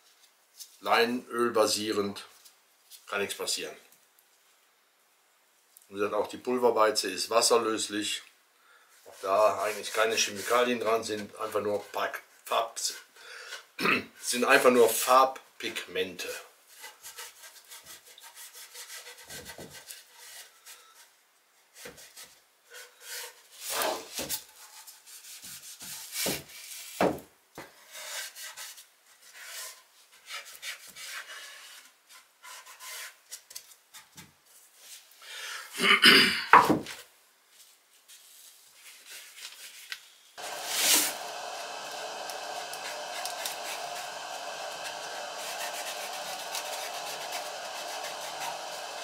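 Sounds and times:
rag rubbing on wood: 40.4 - 49.0.

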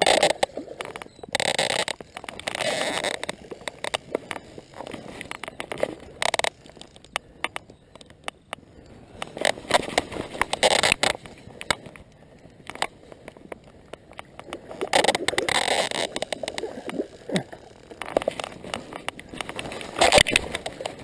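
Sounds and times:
handling rustle: 9.1 - 21.0.

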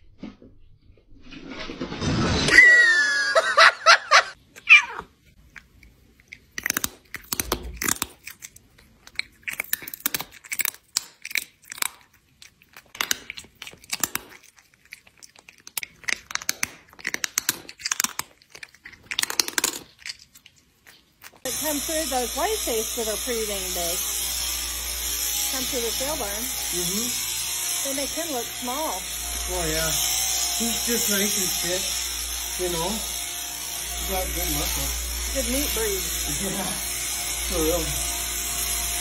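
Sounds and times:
high-pitched cry: 2.5 - 5.1
cat chewing: 4.6 - 22.6.

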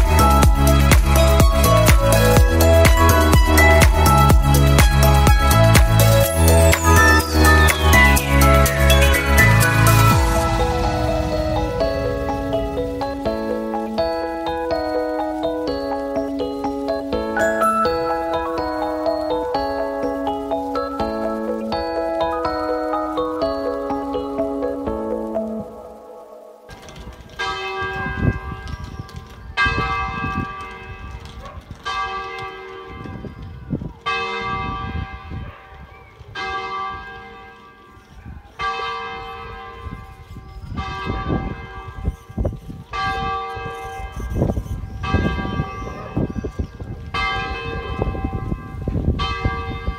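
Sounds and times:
low uneven rumble: 10.2 - 14.2
church bell tolling: 17.3 - 24.1, 47.1 - 49.9.

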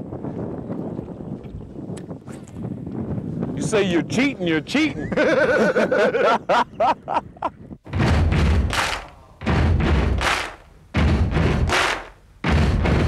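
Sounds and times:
man laughing: 4.9 - 7.6
deep thud sound effect hits: 7.9 - 13.0.

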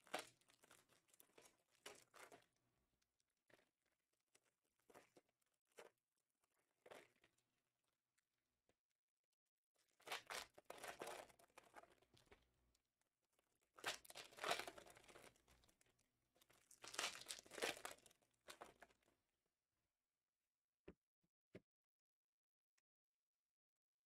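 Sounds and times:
packaging crinkling and tearing: 16.6 - 18.8.

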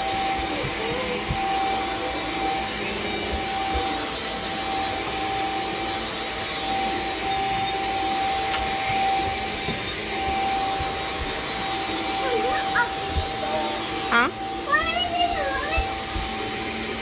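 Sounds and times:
stick vacuum motor whine: 0.0 - 17.0.

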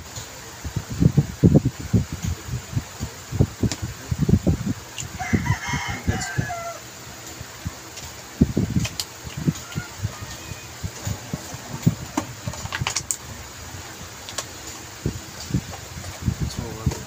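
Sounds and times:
rooster crowing: 5.1 - 7.0, 9.4 - 12.0.

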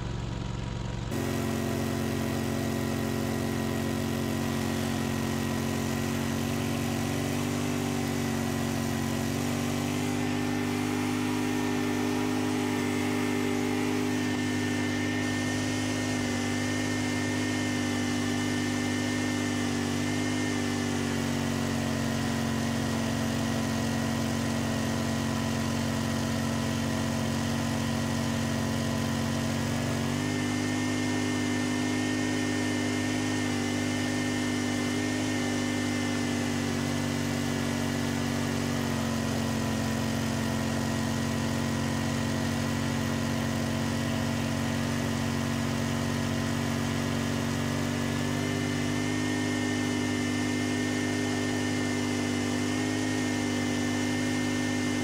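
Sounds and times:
snowblower engine running: 0.0 - 55.0.

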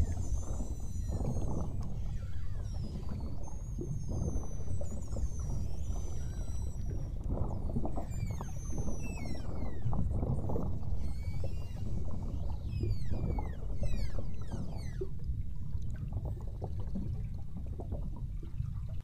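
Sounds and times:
whales whistling and chirping: 0.0 - 15.3.

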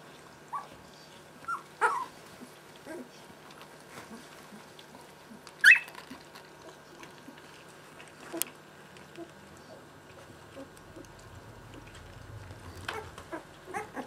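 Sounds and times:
small paws shuffling: 0.0 - 14.0
puppy squealing: 0.5 - 0.7, 1.5 - 2.2, 5.6 - 6.0, 12.9 - 14.0.

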